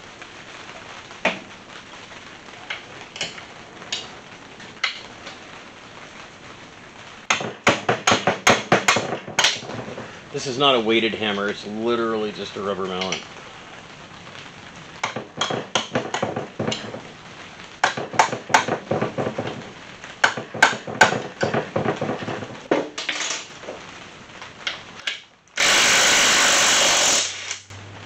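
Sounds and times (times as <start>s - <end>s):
impact wrench burst: 25.6s - 27.7s.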